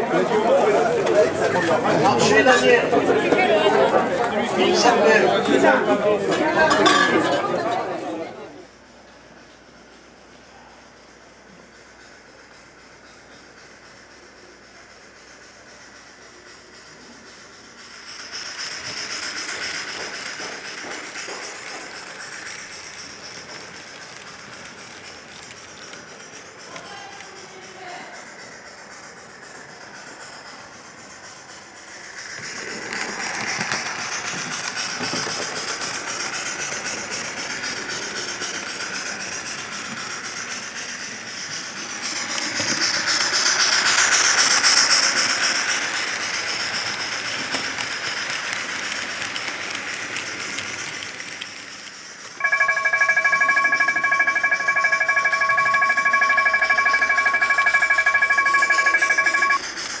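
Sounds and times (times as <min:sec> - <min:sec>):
model railway running hiss: 0:00.0 - 1:00.0
level crossing bell ringing: 0:52.4 - 0:59.6.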